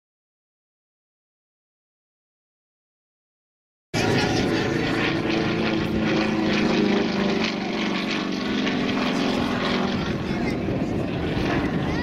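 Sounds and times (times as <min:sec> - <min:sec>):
propeller plane engine drone: 0:04.0 - 0:12.0.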